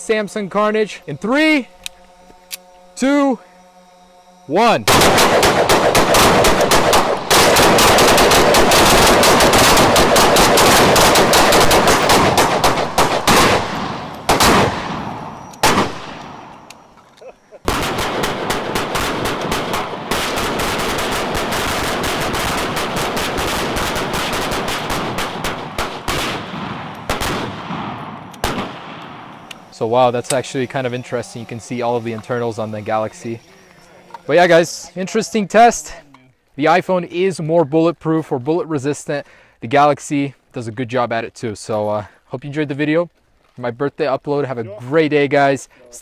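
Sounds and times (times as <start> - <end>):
rifle volley: 17.7 - 30.3.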